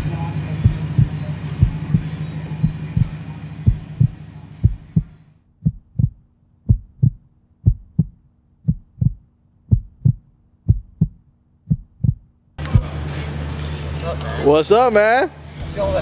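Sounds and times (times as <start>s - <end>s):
heartbeat thumps: 0.0s - 12.9s
faint low hum: 0.0s - 13.2s
outdoor background noise: 0.0s - 16.0s.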